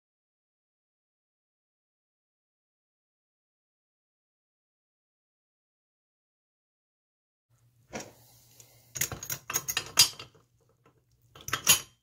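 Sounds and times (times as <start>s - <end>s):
metal clicks and clatter: 9.0s - 12.0s.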